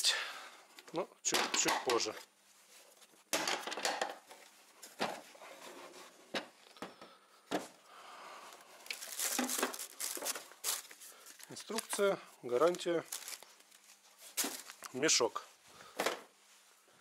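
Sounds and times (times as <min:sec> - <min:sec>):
packaging rustling and crinkling: 0:08.5 - 0:15.4.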